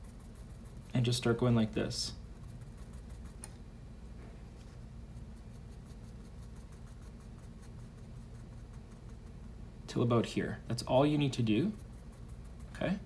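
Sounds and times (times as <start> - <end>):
pencil scratching on paper: 0.0 - 1.4, 2.3 - 3.5, 4.6 - 9.5, 11.4 - 13.0.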